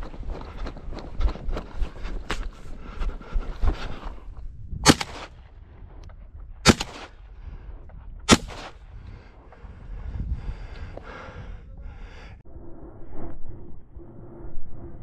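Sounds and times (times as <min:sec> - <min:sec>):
shotgun shots: 0:04.8 - 0:05.4, 0:06.6 - 0:07.2, 0:08.3 - 0:08.8.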